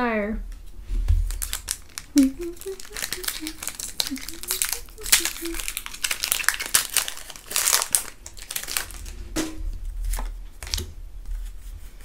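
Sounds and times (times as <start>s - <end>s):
cards clicking and rustling: 1.2s - 9.2s, 10.0s - 10.9s
foil wrapper crinkling: 1.2s - 9.3s, 10.0s - 10.9s.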